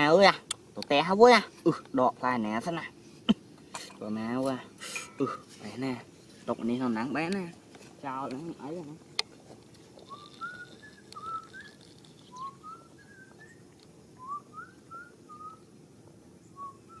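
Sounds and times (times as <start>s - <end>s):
faint background hum: 0.0s - 17.0s
whistled notes sliding upward: 10.0s - 15.6s, 16.6s - 17.0s.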